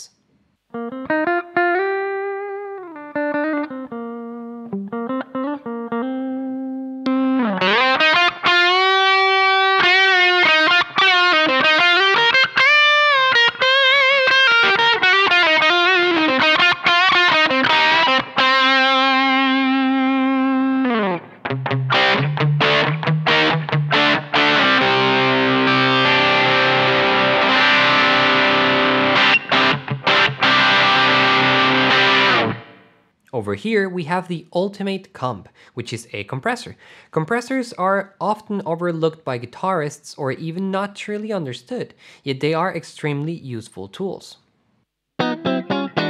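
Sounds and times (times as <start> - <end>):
distorted electric guitar lead: 0.7 - 33.0, 45.2 - 46.0.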